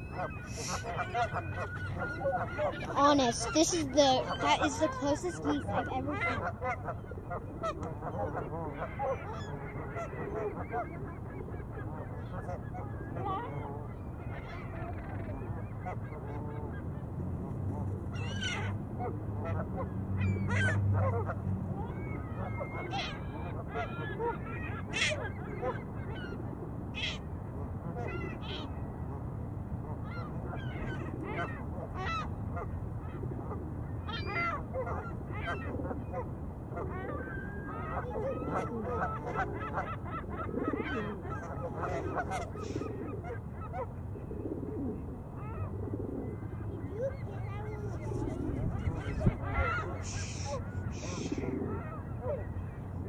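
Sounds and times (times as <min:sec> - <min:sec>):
geese honking: 0:00.0 - 0:16.9, 0:34.1 - 0:44.0, 0:47.0 - 0:52.7.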